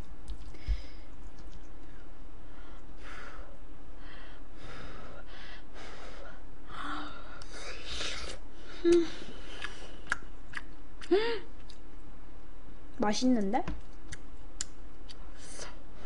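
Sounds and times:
woman chewing food: 8.8 - 11.9.

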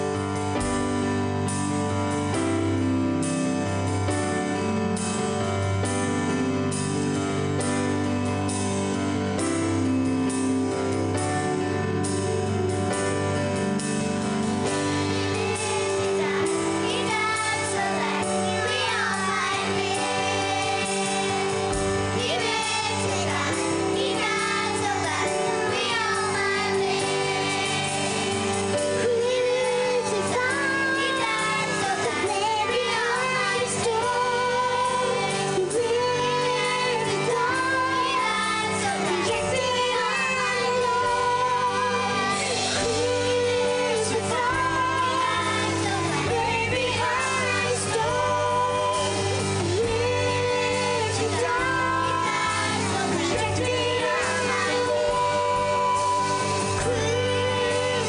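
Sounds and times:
live band playing slow song: 0.0 - 58.0
children's choir singing: 14.7 - 58.0
girl singing into microphone: 28.7 - 58.0.

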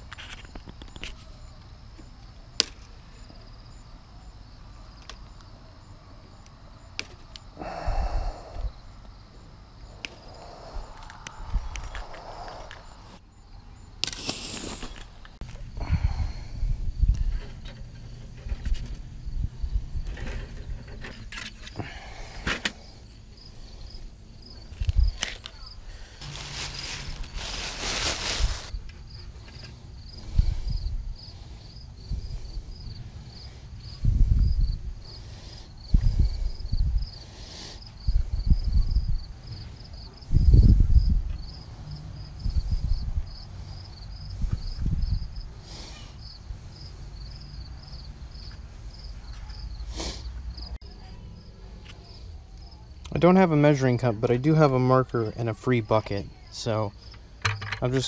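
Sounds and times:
cricket chirping: 0.0 - 58.0
scraping rustle of wire mesh: 26.2 - 28.8.

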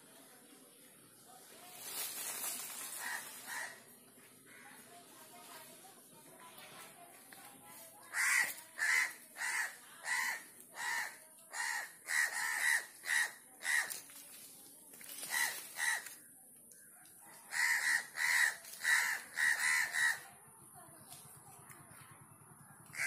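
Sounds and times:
crow cawing: 2.9 - 3.9, 4.5 - 4.8, 8.1 - 14.0, 15.2 - 16.2, 17.4 - 20.3.

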